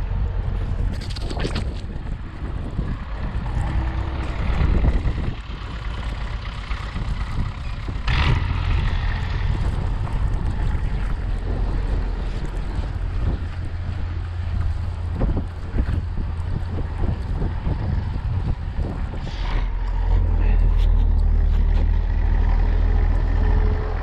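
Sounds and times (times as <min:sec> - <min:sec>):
tractor diesel engine running: 0:00.0 - 0:24.0
wind blowing over microphone: 0:00.0 - 0:24.0.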